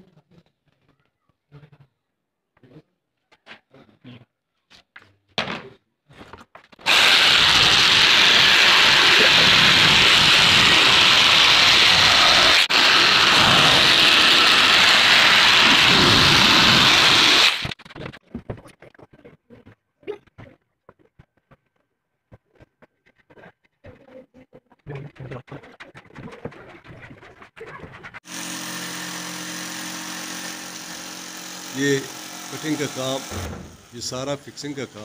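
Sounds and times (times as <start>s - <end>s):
electric jigsaw cutting board: 6.8s - 17.8s, 28.2s - 35.0s.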